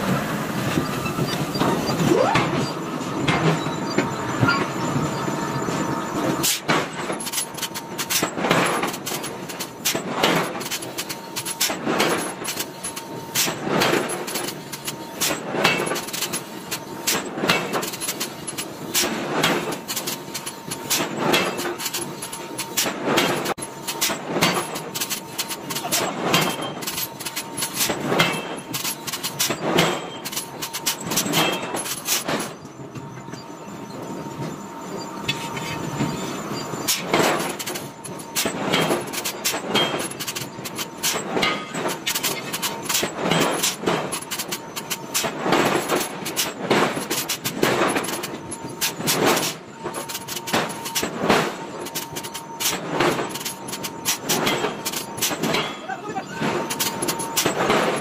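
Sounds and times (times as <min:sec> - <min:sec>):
steady machine whine: 0:00.0 - 0:58.0.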